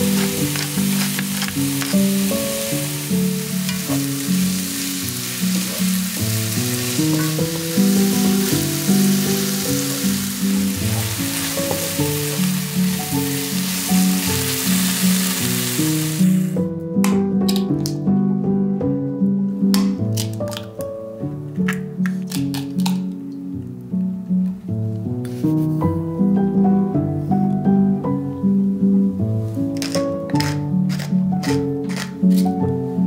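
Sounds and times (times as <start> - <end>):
vegetables sizzling in a pan: 0.0 - 16.6
background music: 0.0 - 33.0.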